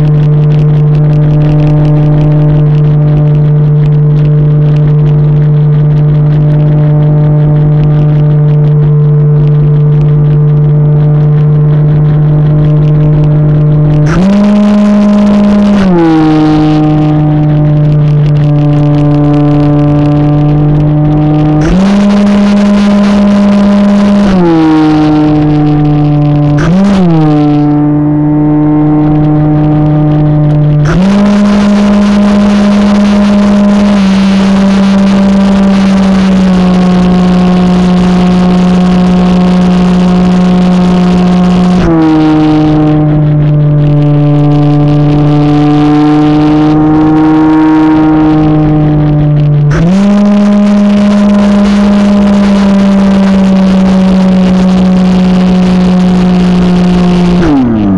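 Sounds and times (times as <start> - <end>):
wind rush: 0.0 - 57.9
model airplane motor droning: 30.8 - 46.9.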